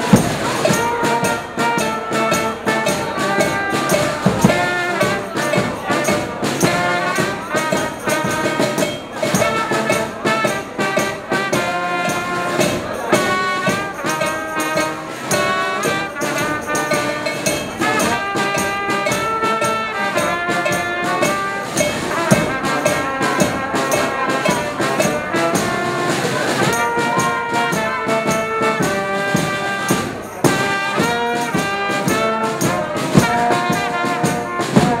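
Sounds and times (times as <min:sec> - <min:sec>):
brass band playing: 0:00.0 - 0:35.0
drum beat: 0:00.0 - 0:35.0
tambourine: 0:00.0 - 0:35.0.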